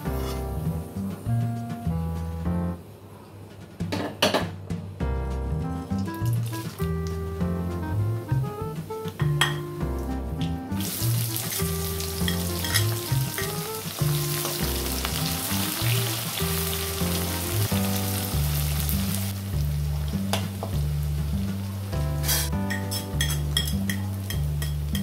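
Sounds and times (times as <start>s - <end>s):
background music: 0.0s - 2.9s, 4.4s - 25.0s
onions sizzling in hot oil: 10.8s - 25.0s
metal spatula clinks: 22.7s - 25.0s.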